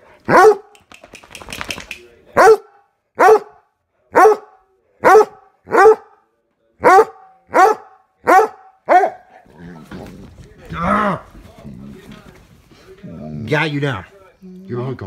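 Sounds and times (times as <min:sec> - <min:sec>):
dog barking: 0:00.3 - 0:00.7, 0:02.4 - 0:06.2, 0:06.8 - 0:09.3.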